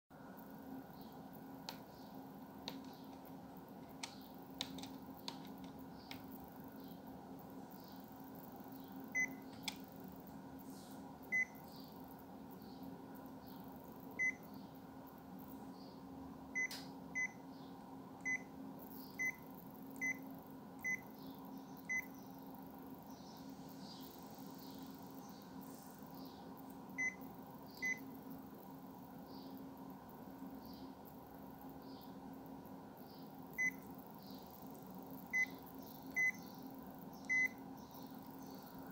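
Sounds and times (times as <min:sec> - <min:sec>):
steady low hum: 0:00.1 - 0:38.9.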